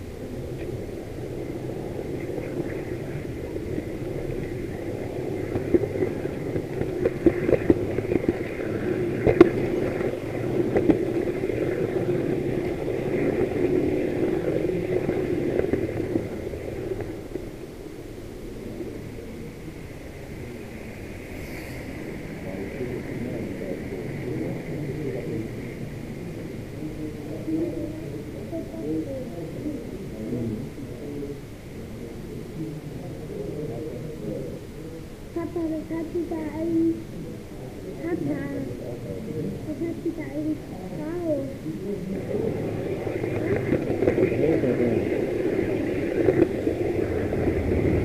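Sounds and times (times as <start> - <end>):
model train running on track: 0.0 - 18.0, 35.2 - 37.1, 37.8 - 48.0.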